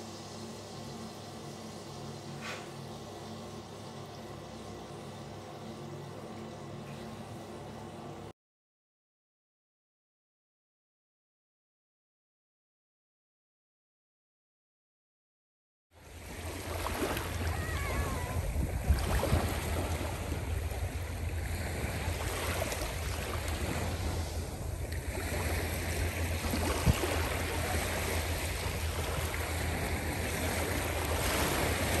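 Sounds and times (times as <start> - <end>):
small waves washing on sand: 16.1 - 32.0
wind rumble on microphone: 16.2 - 32.0.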